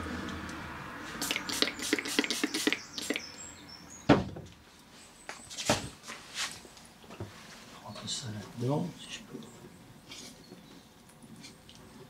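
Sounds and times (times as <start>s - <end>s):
loud thump: 4.1s - 4.5s.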